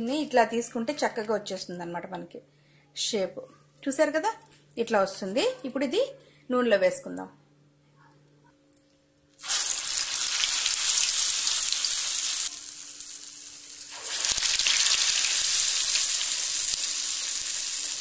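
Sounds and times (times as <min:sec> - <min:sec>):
hot oil sizzling: 0:09.4 - 0:18.0.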